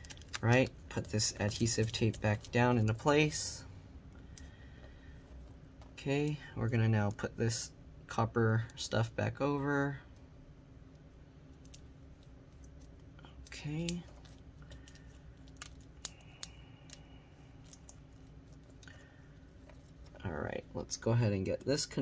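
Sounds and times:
thin metal foil crinkling: 0:00.0 - 0:03.3, 0:11.6 - 0:18.8
low steady hum: 0:00.0 - 0:22.0.

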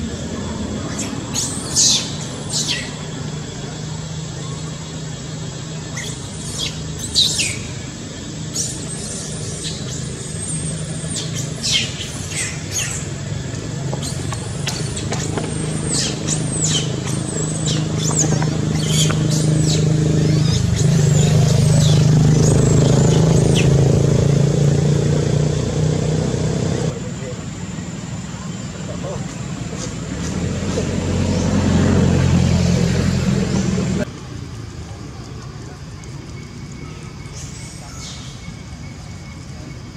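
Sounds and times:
vehicle engine droning: 0:00.0 - 0:39.9
baby monkey screaming: 0:00.9 - 0:03.0, 0:14.0 - 0:23.8.

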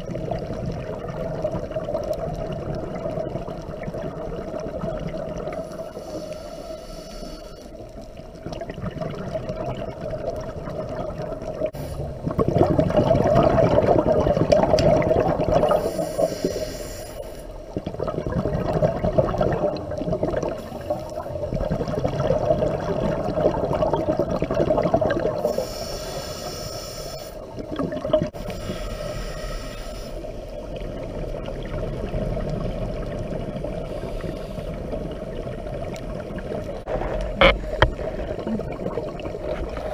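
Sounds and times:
gurgling exhaled bubbles: 0:00.0 - 0:05.8, 0:08.0 - 0:16.3, 0:17.6 - 0:25.6, 0:27.4 - 0:28.5, 0:30.4 - 0:39.9
hissing regulator inhalations: 0:05.5 - 0:07.8, 0:15.7 - 0:17.6, 0:25.4 - 0:27.5, 0:28.4 - 0:30.6.

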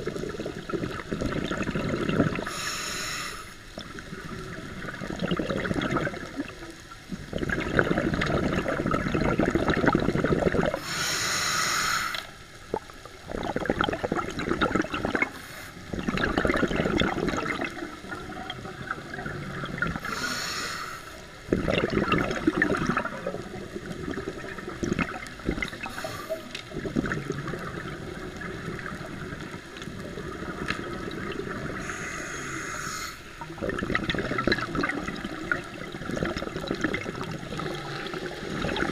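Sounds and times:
bubbling exhaled air underwater: 0:00.0 - 0:02.8, 0:03.7 - 0:11.0, 0:12.1 - 0:38.9
regulator hissing inhalations: 0:02.5 - 0:03.6, 0:10.8 - 0:12.4, 0:15.4 - 0:15.8, 0:20.0 - 0:21.3, 0:25.9 - 0:26.5, 0:31.8 - 0:33.4.

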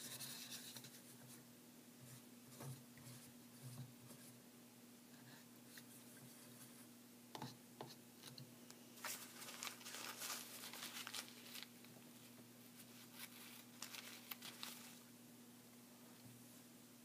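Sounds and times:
paper towel crinkling: 0:09.0 - 0:15.1.

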